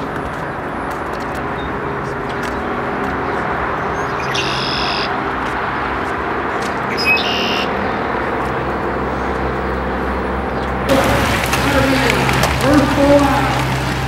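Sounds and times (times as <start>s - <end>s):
high-pitched buzzing tone: 4.2s - 5.2s.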